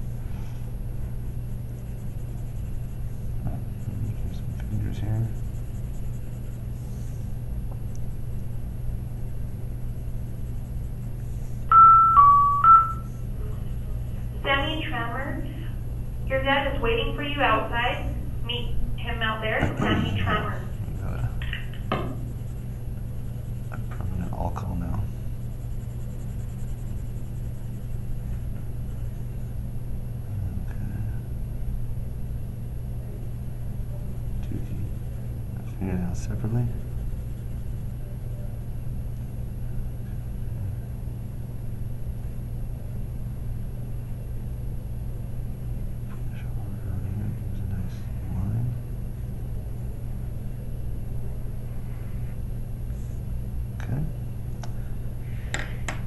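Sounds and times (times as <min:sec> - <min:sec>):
low room hum: 0:00.0 - 0:56.0
pencil scratching on paper: 0:01.5 - 0:07.3, 0:09.2 - 0:11.7, 0:20.1 - 0:24.6, 0:25.3 - 0:29.6, 0:36.8 - 0:37.9.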